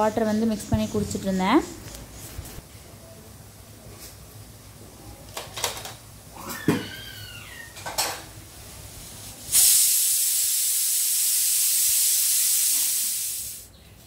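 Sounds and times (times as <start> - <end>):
loud steady hiss: 8.3 - 13.7.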